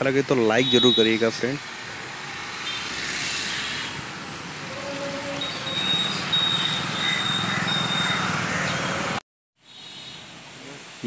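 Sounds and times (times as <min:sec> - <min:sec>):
road traffic: 0:00.0 - 0:11.0
motorcycles riding past: 0:01.4 - 0:09.2.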